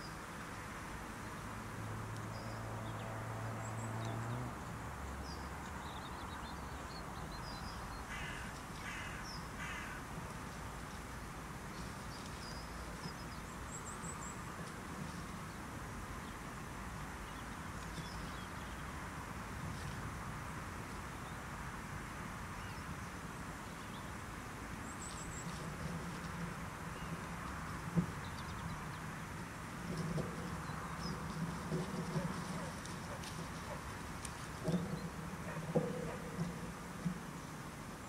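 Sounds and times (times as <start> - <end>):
outdoor background: 0.0 - 38.0
small birds chirping: 2.2 - 19.0
crow cawing: 8.1 - 10.0.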